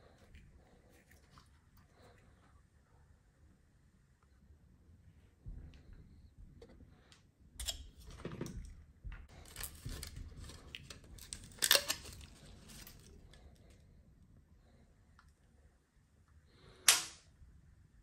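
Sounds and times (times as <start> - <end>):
rustling: 9.3 - 13.8.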